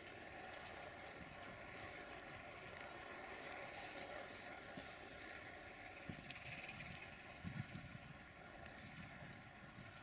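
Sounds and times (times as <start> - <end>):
faint wind on microphone: 5.7 - 10.0.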